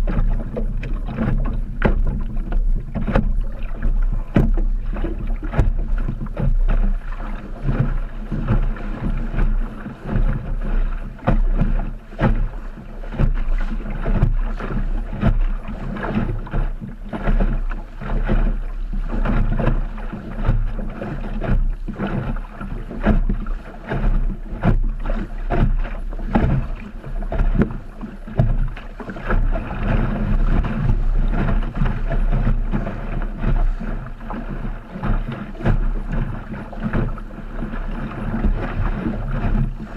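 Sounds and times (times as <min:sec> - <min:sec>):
short knocks: 0:00.0 - 0:04.7
muffled rumble of water and wind: 0:00.0 - 0:39.9
water slapping against hull: 0:00.0 - 0:39.9.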